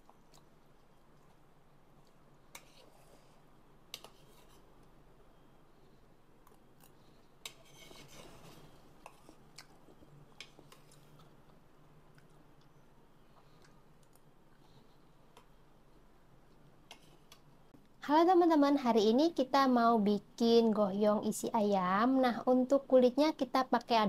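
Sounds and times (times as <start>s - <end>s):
soft rustle: 7.2s - 11.4s
metal spoon scraping bowl: 7.4s - 8.7s.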